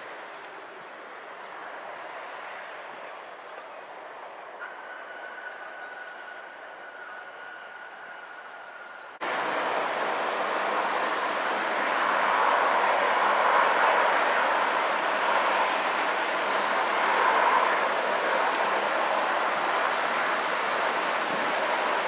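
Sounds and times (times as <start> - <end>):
turboprop engines at high power: 5.3 - 22.0.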